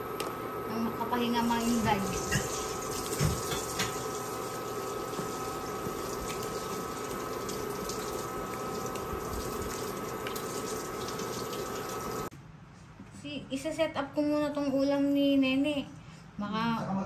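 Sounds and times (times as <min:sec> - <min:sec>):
water bubbling at a boil: 0:02.3 - 0:12.3.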